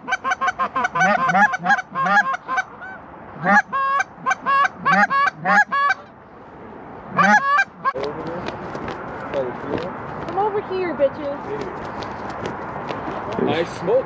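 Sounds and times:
goose honking and clucking: 0:00.0 - 0:06.1, 0:07.1 - 0:08.0.

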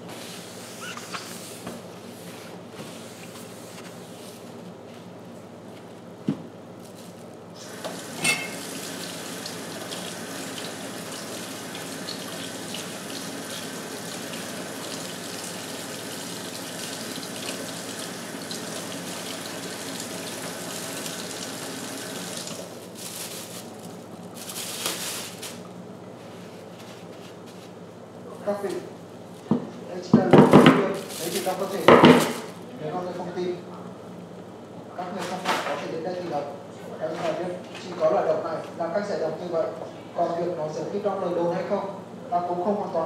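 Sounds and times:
water running: 0:07.6 - 0:22.8.

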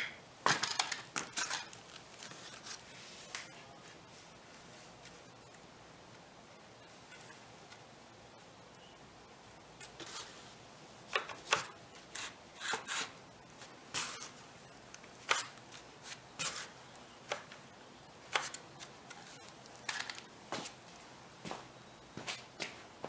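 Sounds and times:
wood strips scraping on cardboard: 0:11.5 - 0:13.2.

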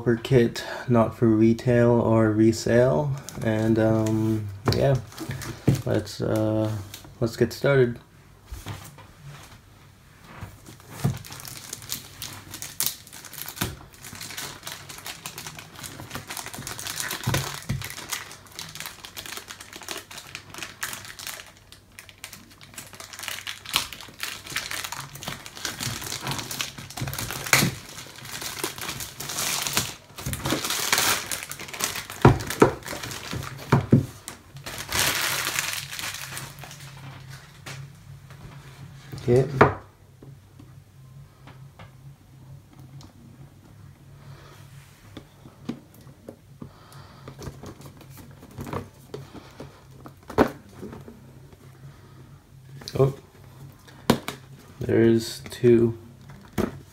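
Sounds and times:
plastic shrink-wrap tearing: 0:10.8 - 0:37.6.

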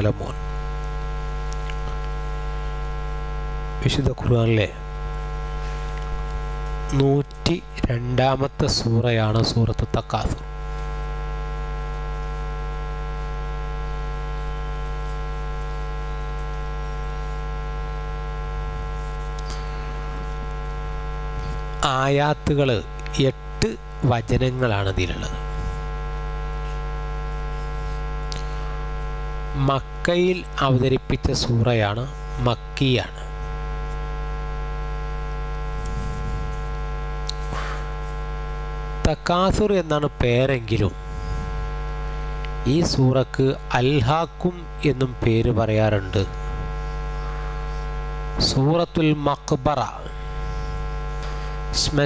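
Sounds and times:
electrical mains hum: 0:00.0 - 0:52.0.

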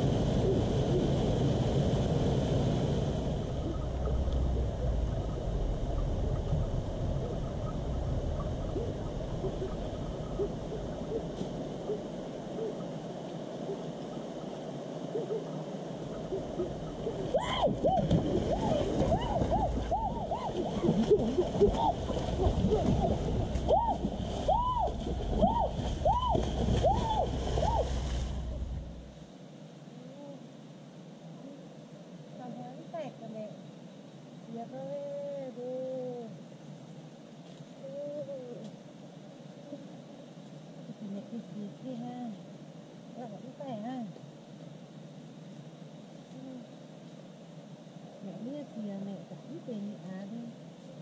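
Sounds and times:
wind rumble on microphone: 0:00.0 - 0:29.2
water splashing in a stream: 0:15.6 - 0:29.1.

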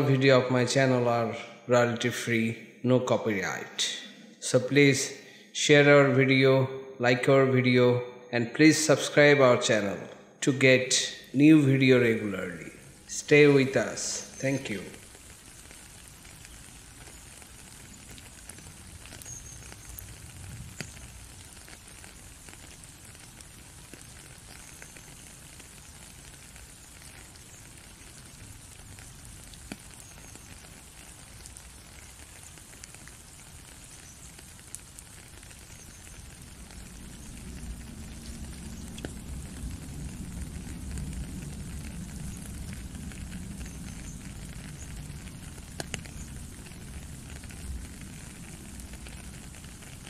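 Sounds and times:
steady rain falling: 0:00.0 - 0:02.5, 0:08.8 - 0:50.0
low rumble: 0:36.2 - 0:49.2.

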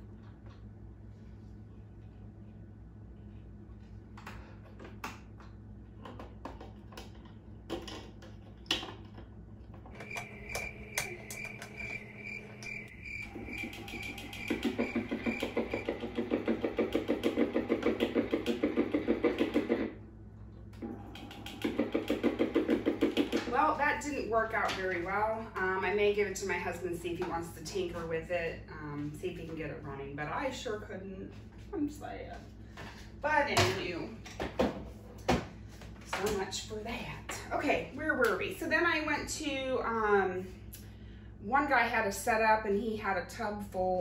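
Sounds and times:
record player rhythmic chatter: 0:10.0 - 0:16.3.

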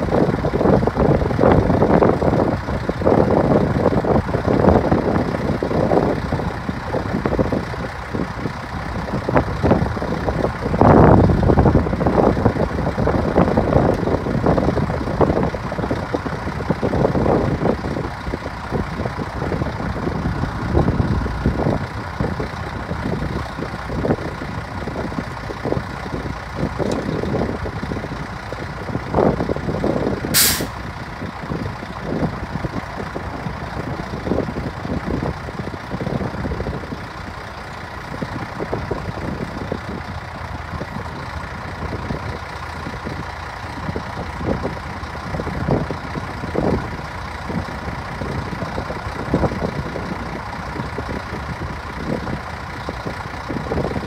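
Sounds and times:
diesel engine running: 0:00.0 - 0:54.0
loud hiss of released air: 0:30.4 - 0:30.8.

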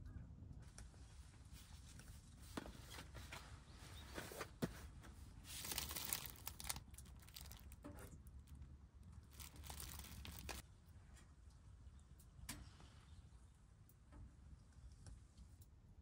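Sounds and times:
packaging crinkling and tearing: 0:05.5 - 0:10.6.

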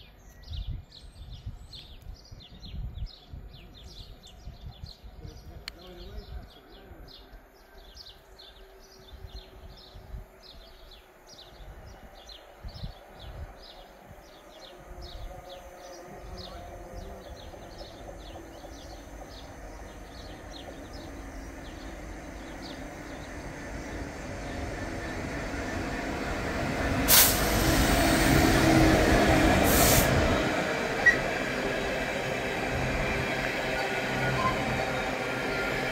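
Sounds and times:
wind buffeting microphone: 0:00.4 - 0:35.9
diesel locomotive rumble: 0:14.0 - 0:35.9.

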